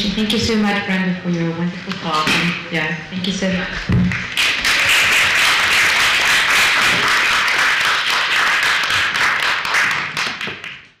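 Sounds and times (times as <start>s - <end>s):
audience applauding: 4.1s - 10.9s.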